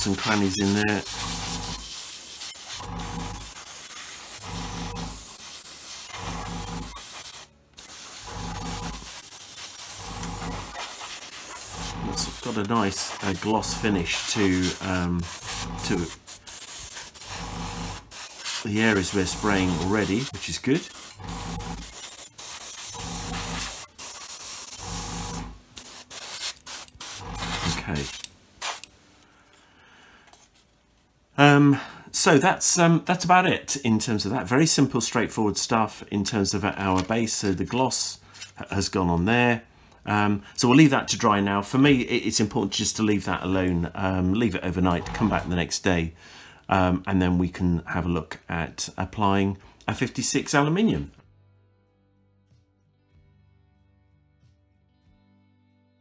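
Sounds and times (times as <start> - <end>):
airbrush hissing: 0.0 - 28.9.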